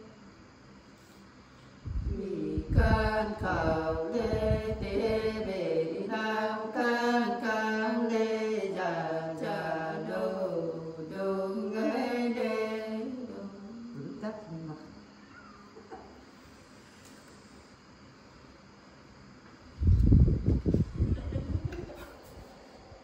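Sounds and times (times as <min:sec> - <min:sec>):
women singing unaccompanied: 0:02.0 - 0:14.6.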